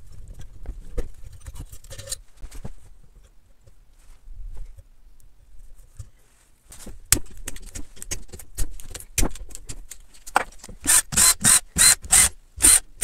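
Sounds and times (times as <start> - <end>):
ratchet wrench strokes: 10.9 - 12.8.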